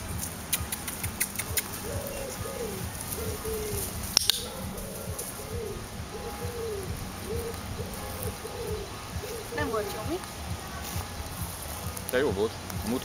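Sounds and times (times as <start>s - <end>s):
dove cooing: 0.0s - 13.0s
sharp double click: 4.2s - 4.5s.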